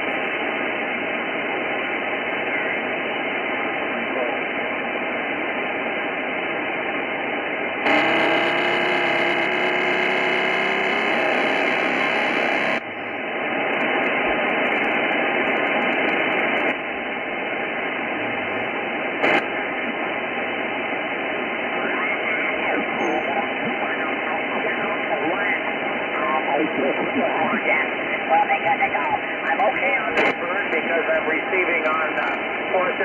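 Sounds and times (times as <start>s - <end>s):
radio receiver hiss: 0.0s - 33.0s.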